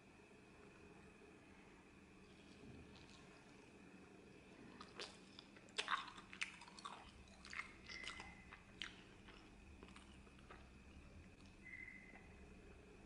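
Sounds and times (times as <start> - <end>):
pizza crust crunching: 4.8 - 11.5.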